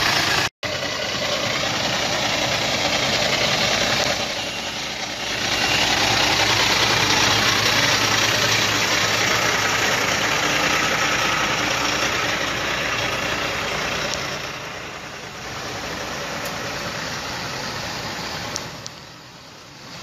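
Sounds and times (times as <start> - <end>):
diesel truck engine idling: 0.0 - 20.0.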